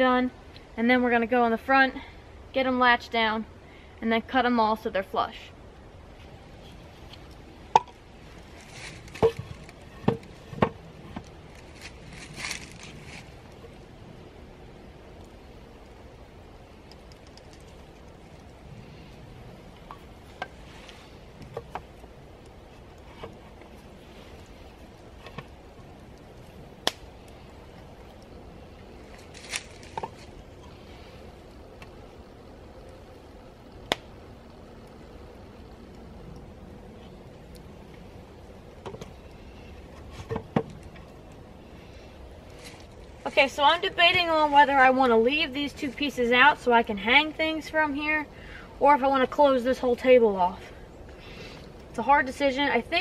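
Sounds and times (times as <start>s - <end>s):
wooden poles clicking and knocking: 7.1s - 13.7s, 29.1s - 30.8s
knocks on wooden poles: 10.0s - 11.2s.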